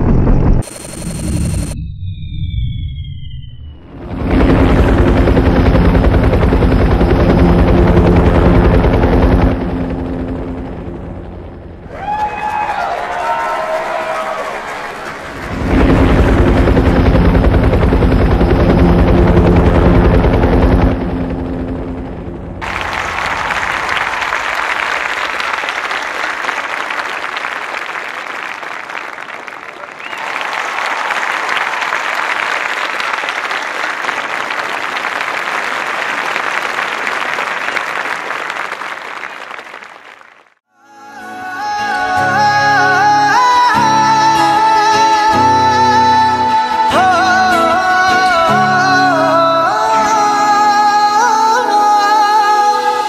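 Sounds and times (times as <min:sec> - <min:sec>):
helicopter rotor chop: 0:00.0 - 0:01.8, 0:03.8 - 0:27.3
many hands clapping: 0:12.2 - 0:15.8, 0:22.6 - 0:40.6
music: 0:40.8 - 0:53.0.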